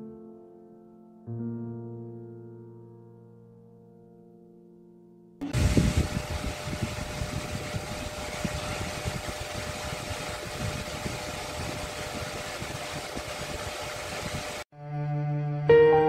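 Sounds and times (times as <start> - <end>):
electric fan running: 5.4 - 14.7.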